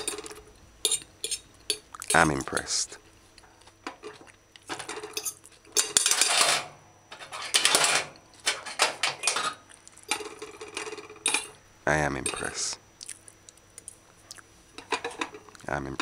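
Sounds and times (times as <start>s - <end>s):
fork scraping on ceramic plate: 0.9s - 1.5s.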